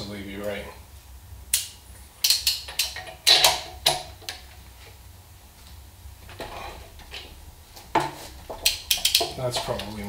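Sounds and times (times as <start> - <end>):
soft metal scrape: 6.2 - 7.4.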